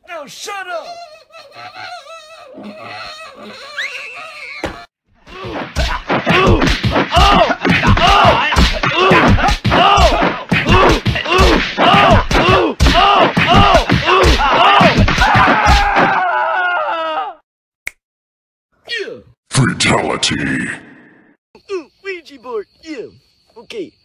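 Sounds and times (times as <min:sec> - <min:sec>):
pained cry: 0:00.6 - 0:05.6, 0:06.3 - 0:17.4
cartoon thumps: 0:04.6 - 0:16.2.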